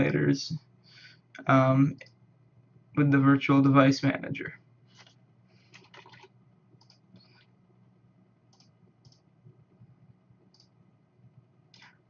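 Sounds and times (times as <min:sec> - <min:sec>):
low steady hum: 0:00.0 - 0:12.0
computer mouse clicks: 0:05.0 - 0:07.4, 0:08.5 - 0:09.3, 0:10.5 - 0:10.8, 0:11.7 - 0:12.0.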